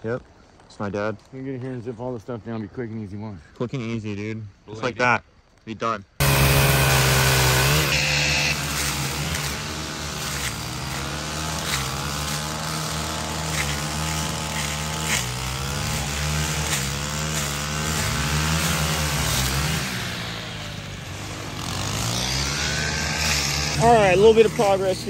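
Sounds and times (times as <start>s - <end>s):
chainsaw revving: 6.2s - 25.0s.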